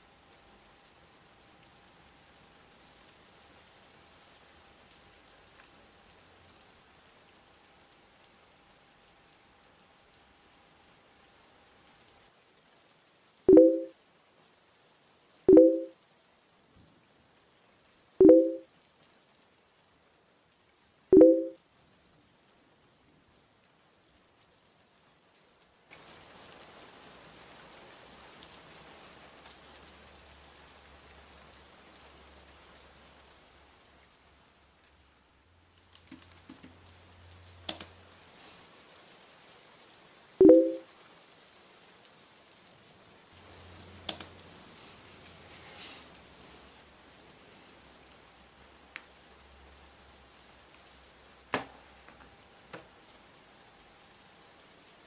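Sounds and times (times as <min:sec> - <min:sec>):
keyboard typing: 0:13.5 - 0:13.9, 0:15.5 - 0:15.9, 0:35.9 - 0:36.8, 0:37.6 - 0:37.9, 0:44.0 - 0:44.3
low electronic chimes: 0:13.5 - 0:13.9, 0:15.5 - 0:15.9, 0:18.2 - 0:18.6, 0:21.2 - 0:21.6, 0:40.4 - 0:40.8.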